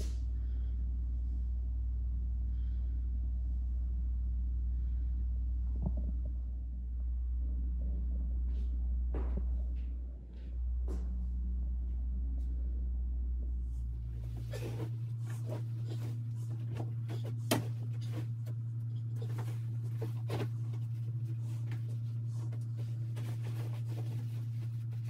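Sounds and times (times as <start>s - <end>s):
steady low hum: 0.0s - 25.0s.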